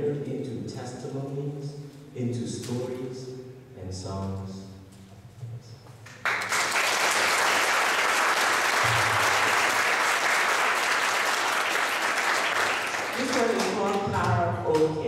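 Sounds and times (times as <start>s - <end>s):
audience applauding: 6.1s - 14.4s.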